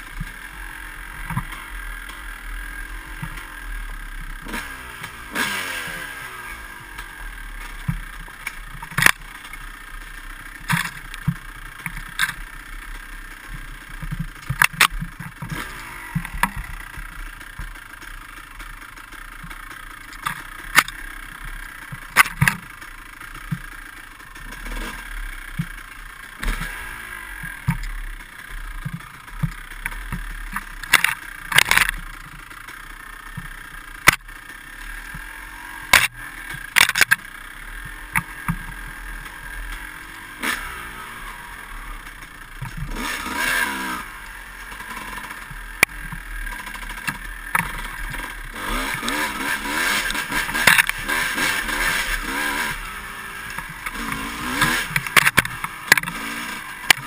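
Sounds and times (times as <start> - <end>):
dirt bike engine revving: 0.0 - 57.0
bike knocking on bumps: 1.2 - 2.3, 6.8 - 26.8, 27.4 - 39.9, 44.8 - 52.8, 53.4 - 57.0.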